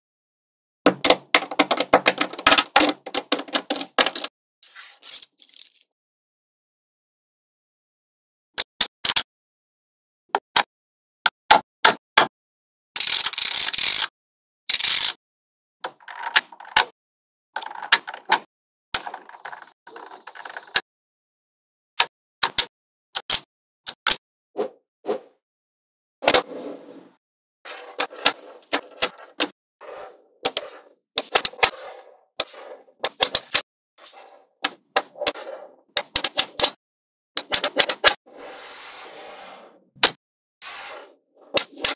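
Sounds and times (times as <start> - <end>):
balls rattling and sliding: 0.9 - 5.8, 19.0 - 20.8, 26.2 - 36.8, 37.4 - 41.9.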